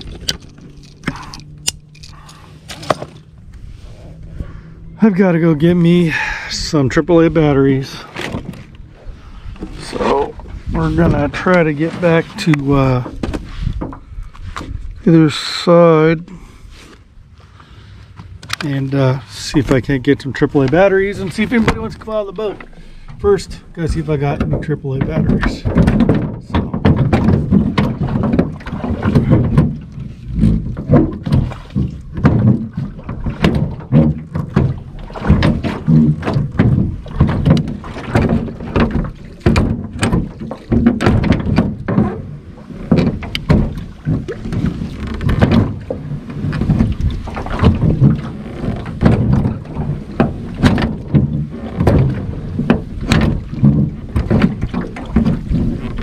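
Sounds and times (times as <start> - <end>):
low rumble of rowing strokes: 0.0 - 56.0
oars knocking in oarlocks: 9.5 - 14.8, 19.5 - 56.0.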